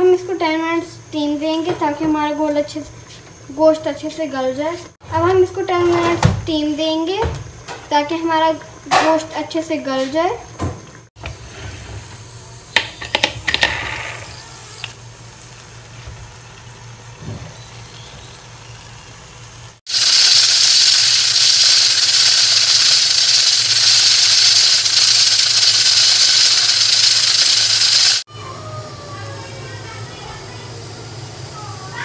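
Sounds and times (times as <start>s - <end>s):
steam hissing from pressure cooker: 11.2s - 28.3s, 29.1s - 32.0s.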